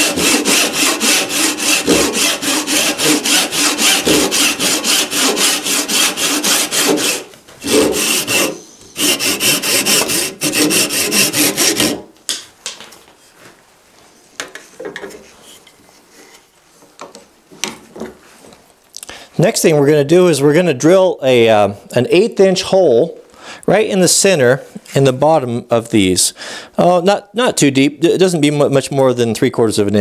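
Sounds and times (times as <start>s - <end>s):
handsaw cutting wood: 0.0s - 12.1s.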